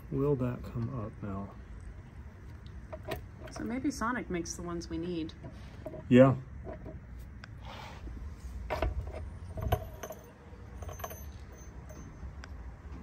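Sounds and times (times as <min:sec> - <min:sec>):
metal gears clinking: 0:08.8 - 0:12.2.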